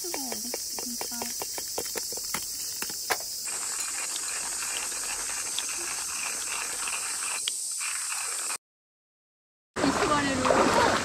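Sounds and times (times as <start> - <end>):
high-pitched insect chorus: 0.0 - 8.6.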